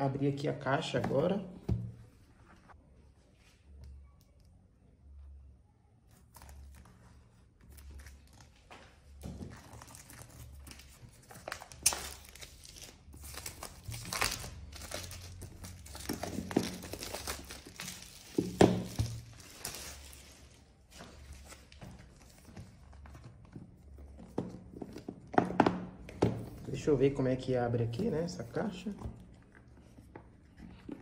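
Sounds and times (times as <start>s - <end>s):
plastic wrapping crinkling and tearing: 6.1s - 23.2s.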